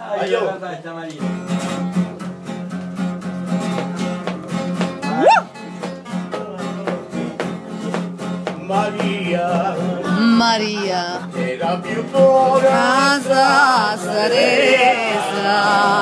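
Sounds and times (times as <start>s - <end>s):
acoustic guitars playing: 1.2s - 16.0s
person's rising vocal cry: 5.1s - 5.5s.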